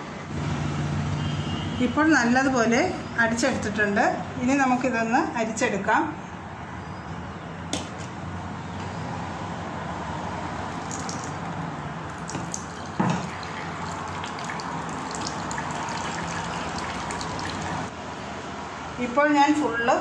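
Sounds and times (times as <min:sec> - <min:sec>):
juice trickling through strainer: 0:10.7 - 0:17.9.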